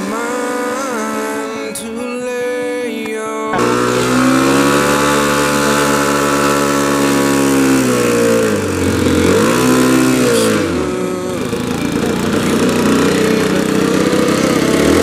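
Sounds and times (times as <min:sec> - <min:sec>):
model airplane engine running: 0:03.6 - 0:15.0.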